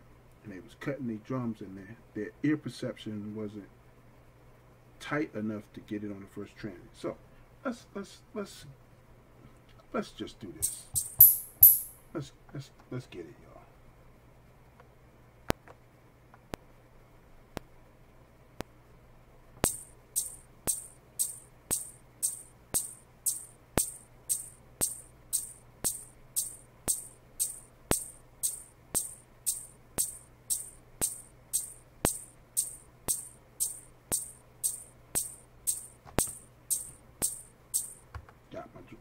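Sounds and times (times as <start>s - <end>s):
metronome clicks: 10.6s - 12.0s, 19.6s - 38.0s
shaker drum beat: 10.6s - 12.0s, 19.6s - 38.0s.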